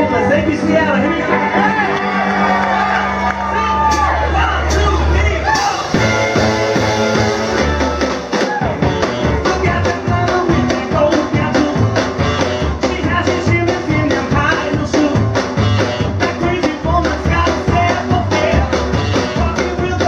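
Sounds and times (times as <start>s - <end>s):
upright bass: 0.0s - 20.0s
driving drum beat: 3.6s - 20.0s
saxophone: 5.9s - 10.9s, 11.6s - 13.1s, 15.5s - 16.6s, 18.4s - 19.8s.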